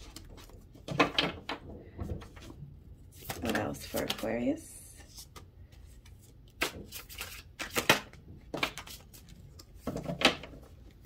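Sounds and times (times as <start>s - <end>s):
cards being shuffled: 3.1s - 11.0s.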